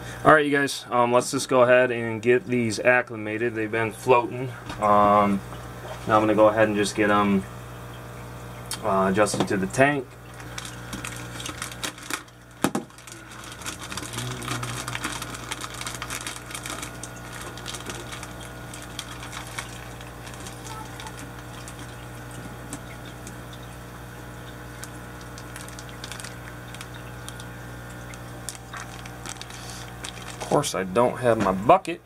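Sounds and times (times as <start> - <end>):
aquarium air pump humming: 0.0 - 32.0
air bubbles pattering: 10.1 - 30.7.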